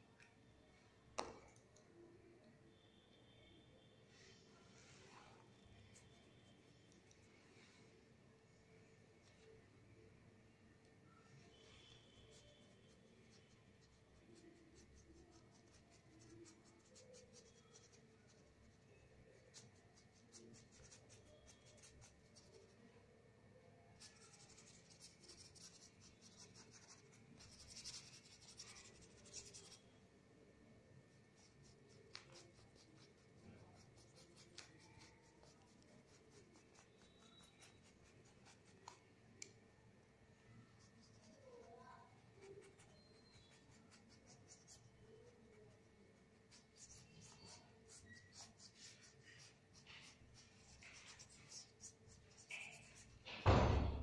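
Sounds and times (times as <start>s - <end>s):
paintbrush strokes on paper: 4.1s - 8.0s, 11.0s - 23.0s, 23.9s - 30.0s, 31.0s - 39.1s, 40.3s - 53.4s.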